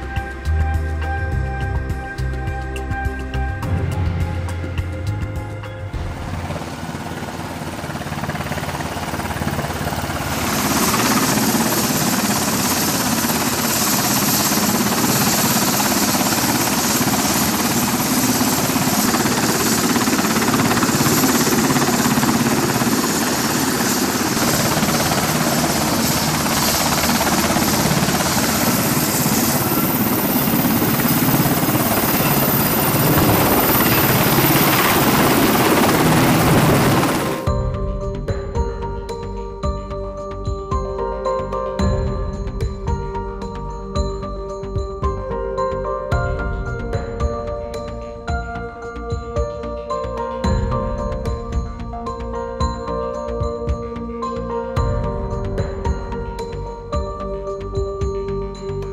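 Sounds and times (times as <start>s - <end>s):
helicopter rotor chopping roar: 0.0s - 39.0s.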